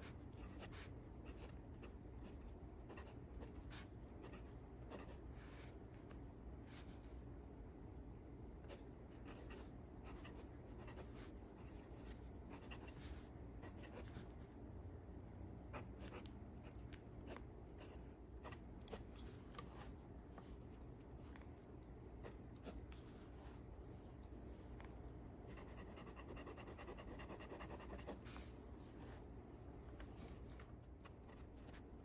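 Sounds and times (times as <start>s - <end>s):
pen scratching on paper: 9.2s - 12.9s, 25.5s - 28.2s.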